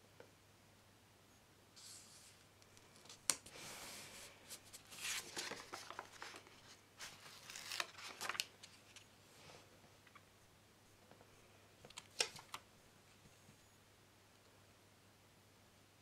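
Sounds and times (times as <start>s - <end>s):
paper rustling and rubbing: 1.8s - 9.1s.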